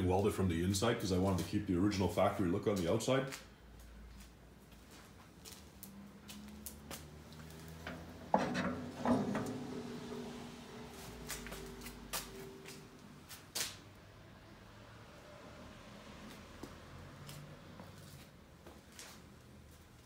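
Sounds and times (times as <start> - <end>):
metal clanking: 7.8 - 13.0.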